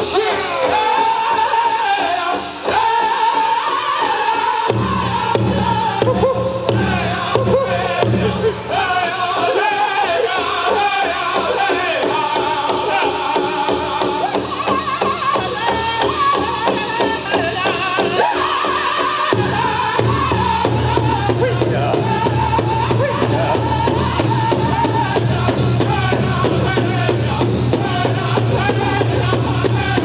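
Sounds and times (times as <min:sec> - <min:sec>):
big drum beat: 0:00.0 - 0:30.0
group singing in high voices: 0:00.0 - 0:30.0
bells jingling: 0:08.1 - 0:30.0.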